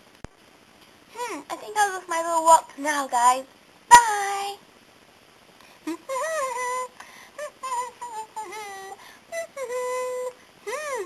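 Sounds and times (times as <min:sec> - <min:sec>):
high-pitched cartoon voice singing: 0:01.5 - 0:04.6, 0:06.0 - 0:11.0.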